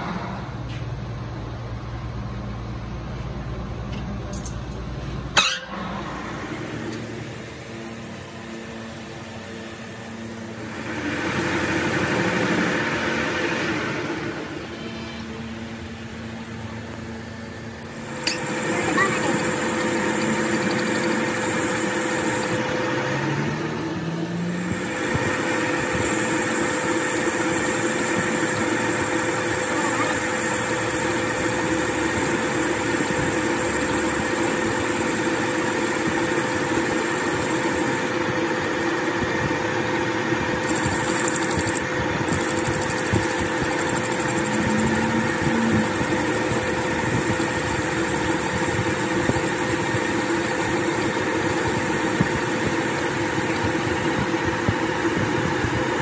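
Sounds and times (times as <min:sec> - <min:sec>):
metal lathe running: 0:06.0 - 0:23.8, 0:24.6 - 0:56.0.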